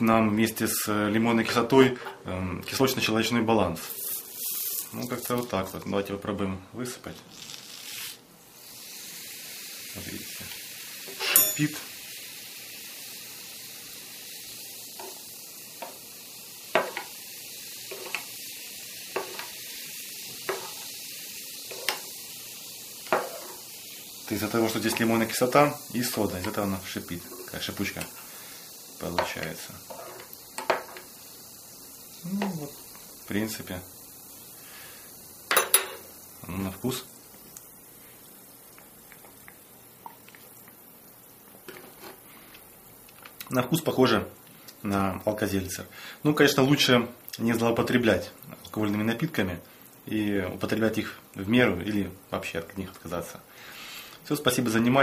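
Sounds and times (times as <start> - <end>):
water fizzing: 2.7 - 6.0, 7.0 - 55.0
teaspoon clinking against glass: 11.2 - 11.8
person sipping a drink: 32.2 - 33.0, 38.2 - 40.8.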